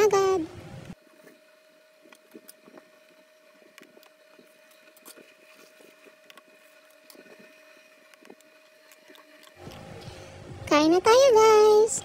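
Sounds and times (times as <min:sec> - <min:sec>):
faint steady hum: 0:00.0 - 0:12.0
small ticks and clicks: 0:00.8 - 0:09.9.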